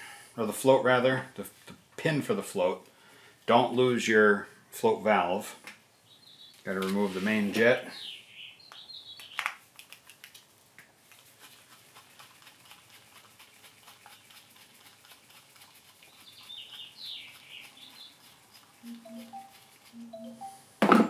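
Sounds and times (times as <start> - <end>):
bird chirping: 5.9 - 6.7, 7.8 - 9.5, 16.0 - 20.8.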